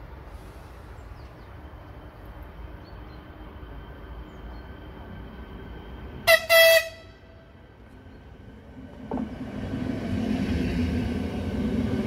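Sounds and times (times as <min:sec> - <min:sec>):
railway horn: 0:06.2 - 0:07.5.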